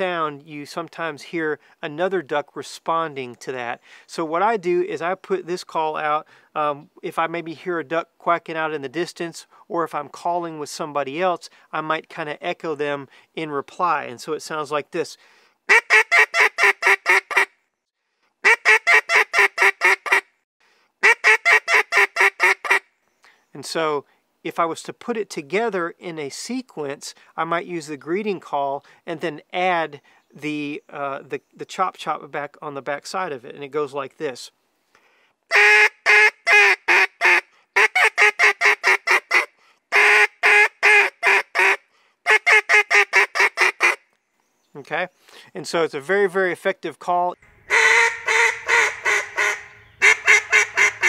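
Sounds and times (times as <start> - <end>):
duck call quacks: 15.7 - 17.5, 18.4 - 20.3, 21.0 - 22.8, 35.5 - 44.0, 47.7 - 51.0.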